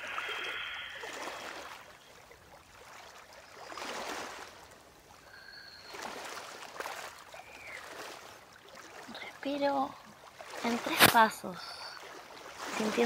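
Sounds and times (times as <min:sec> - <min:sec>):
person breathing slowly: 0:00.0 - 0:01.9.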